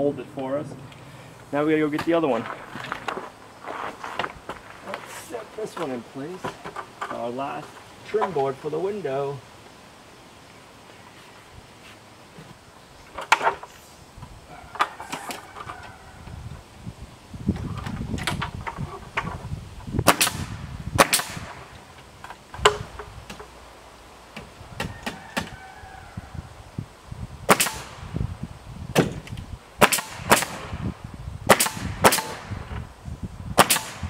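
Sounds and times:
pneumatic nail gun shots: 0:20.0 - 0:21.8, 0:27.5 - 0:28.0, 0:28.9 - 0:30.8, 0:31.5 - 0:32.7, 0:33.6 - 0:34.0.

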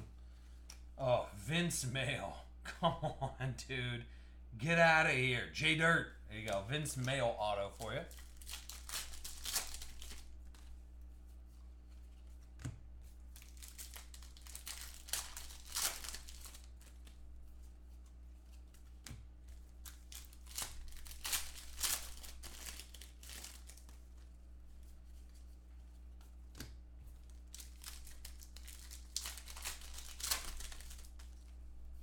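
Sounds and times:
plastic wrapper crinkling: 0:06.4 - 0:10.8, 0:13.3 - 0:17.2, 0:19.6 - 0:24.3, 0:27.2 - 0:32.0.

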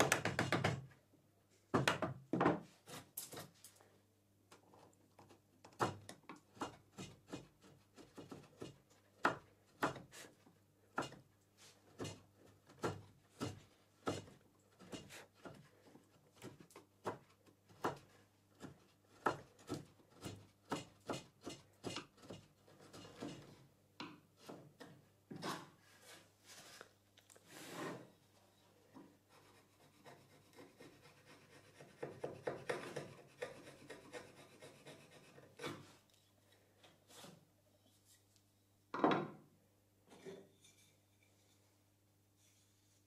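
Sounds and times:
chisel cutting wood: 0:29.4 - 0:35.8.

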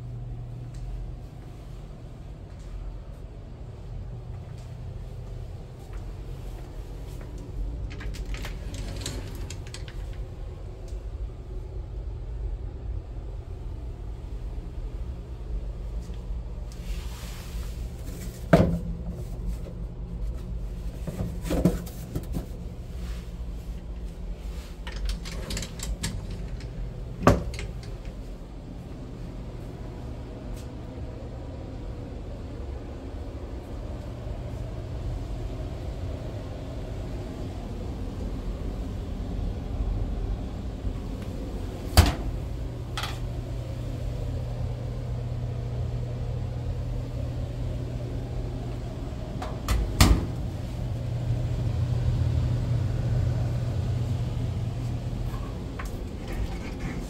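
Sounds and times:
steady low rumble: 0:00.0 - 0:57.0
closet doors knocking and clacking: 0:25.0 - 0:28.0.

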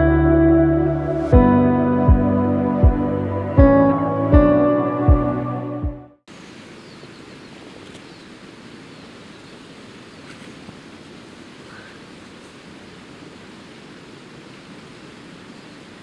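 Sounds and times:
background music: 0:00.0 - 0:06.2
mountain stream rushing: 0:06.3 - 0:16.0.

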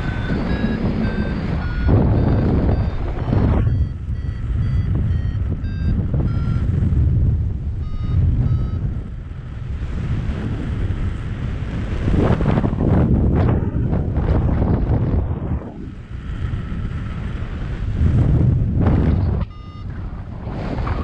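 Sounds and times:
variometer beeping: 0:00.0 - 0:09.3, 0:18.9 - 0:21.0
wind on microphone: 0:00.0 - 0:21.0.

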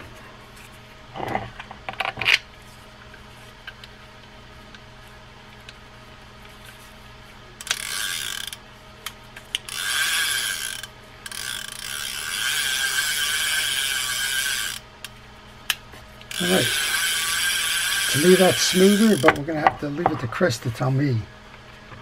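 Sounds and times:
fishing reel gears whirring: 0:07.6 - 0:14.8, 0:16.3 - 0:19.5.

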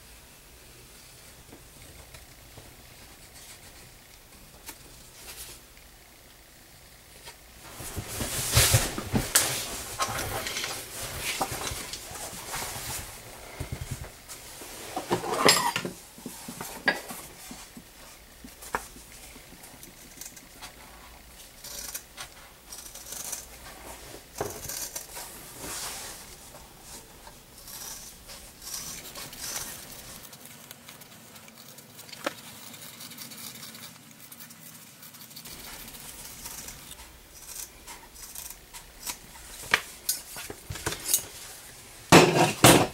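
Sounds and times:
scraping and rustling: 0:07.2 - 0:42.9.

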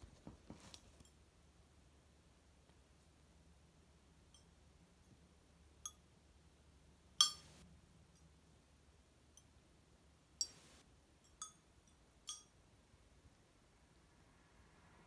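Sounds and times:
ceramic tiles pinging: 0:07.2 - 0:07.6.

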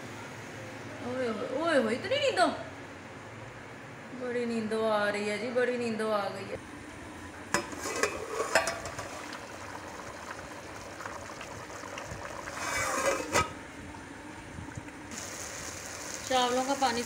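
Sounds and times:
metal pot lid clinking: 0:07.5 - 0:09.3, 0:12.5 - 0:13.6
pot lid scraping: 0:07.6 - 0:09.3, 0:12.3 - 0:13.6
rice sizzling in a pot: 0:07.6 - 0:13.6, 0:15.1 - 0:17.0.

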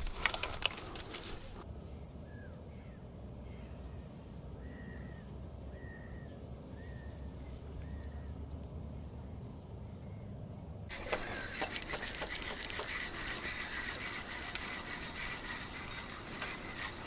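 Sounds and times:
brief rustle: 0:00.0 - 0:01.6
bird calling: 0:10.9 - 0:17.0.

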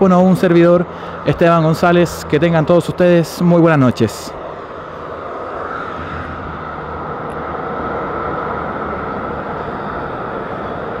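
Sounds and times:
highway traffic tyre noise: 0:00.0 - 0:11.0.

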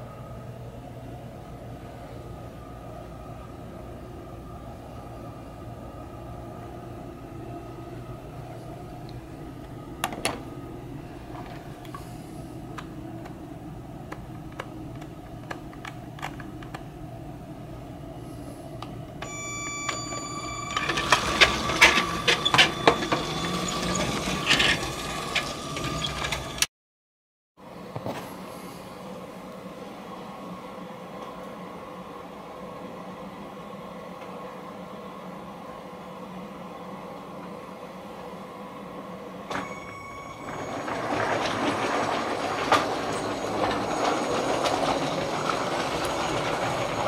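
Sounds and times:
toy train motor hum: 0:20.3 - 0:26.6.

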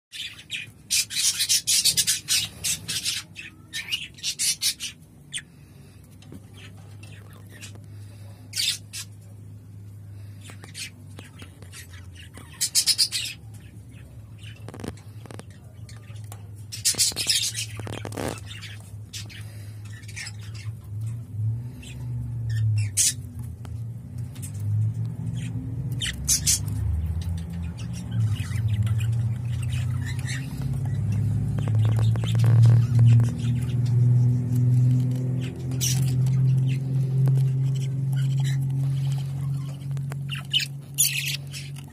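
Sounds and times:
budgerigars chirping and squawking: 0:00.1 - 0:41.9
steady low hum: 0:00.2 - 0:41.9
bird chick scratching in bedding: 0:16.8 - 0:18.7.

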